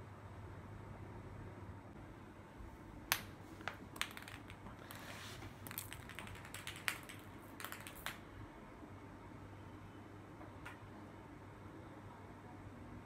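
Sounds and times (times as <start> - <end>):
ping pong ball tapping on stone: 3.1 - 4.7, 5.7 - 8.2.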